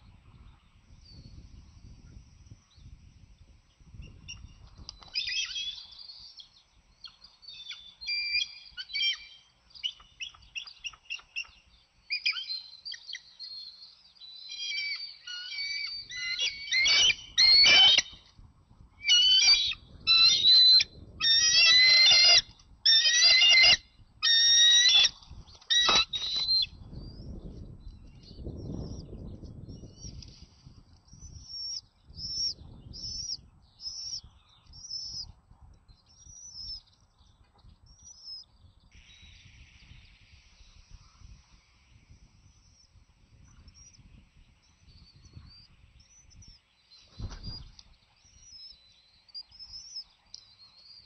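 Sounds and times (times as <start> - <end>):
eagles chittering calls: 14.5 - 18.2, 19.0 - 26.6.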